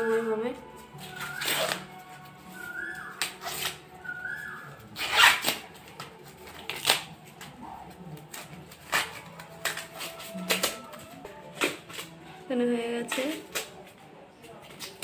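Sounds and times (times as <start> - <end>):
corn husks tearing: 1.0 - 2.0, 2.6 - 12.2.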